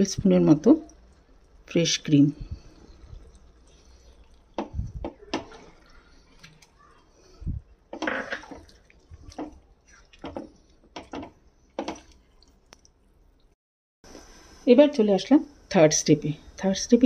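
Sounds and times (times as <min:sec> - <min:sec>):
spatula stirring thick gravy in pan: 0:00.7 - 0:12.6.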